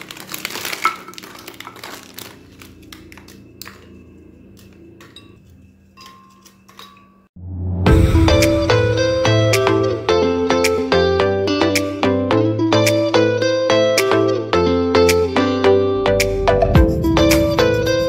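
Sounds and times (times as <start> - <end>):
plastic packet crinkling: 0.0 - 4.0
cookies clicking into glass jar: 0.0 - 7.1
music: 7.4 - 18.0.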